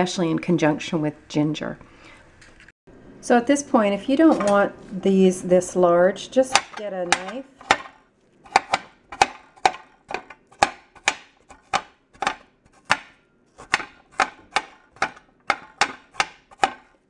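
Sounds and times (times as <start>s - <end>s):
knife chopping on cutting board: 6.6s - 17.0s.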